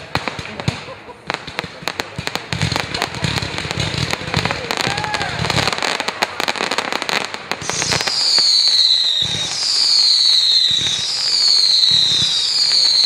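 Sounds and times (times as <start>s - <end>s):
fireworks crackling: 0.0s - 13.0s
falling firework whistle: 7.6s - 13.0s.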